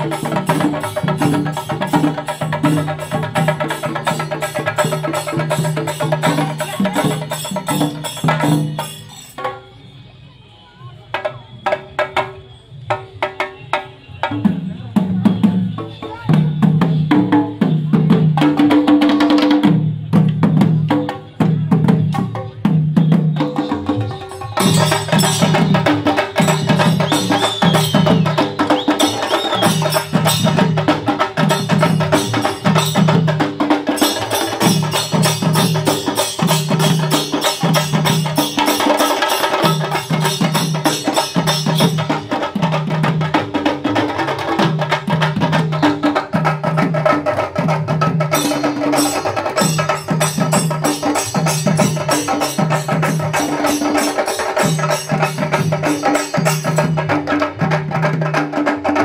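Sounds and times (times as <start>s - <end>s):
barrel drums beaten with sticks: 14.3s - 59.0s
hand cymbals jangling: 24.3s - 28.2s, 29.0s - 42.6s, 48.2s - 57.2s.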